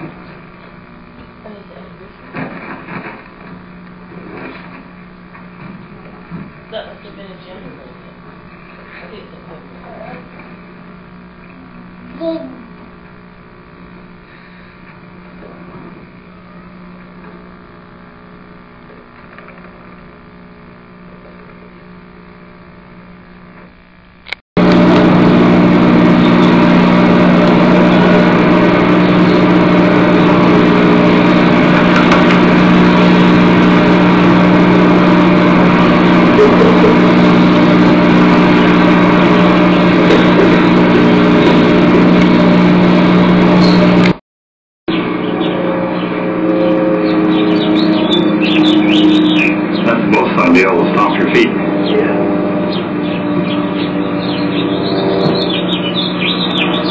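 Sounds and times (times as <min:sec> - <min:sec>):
faint hum: 0:00.0 - 0:44.2
loud mechanical running noise: 0:00.0 - 0:44.2, 0:44.9 - 0:56.9.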